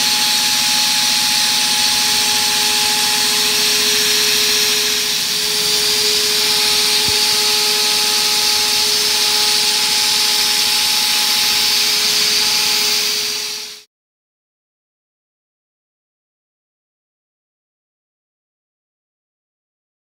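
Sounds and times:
cnc router spindle cutting metal: 0.0 - 13.9.

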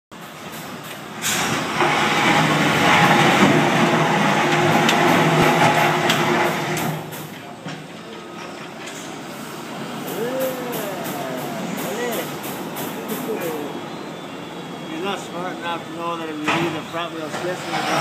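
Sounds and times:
tractor diesel engine running: 0.2 - 8.3.

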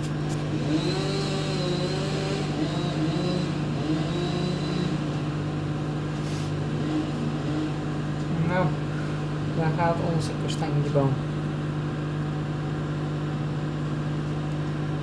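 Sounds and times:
chainsaw cutting wood: 0.4 - 5.4.

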